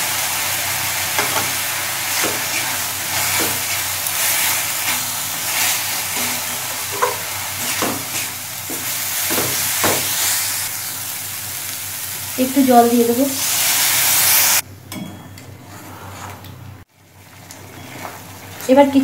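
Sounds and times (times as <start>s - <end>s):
spices sizzling in oil: 0.0s - 14.6s
metal spatula scraping pan: 2.1s - 10.5s.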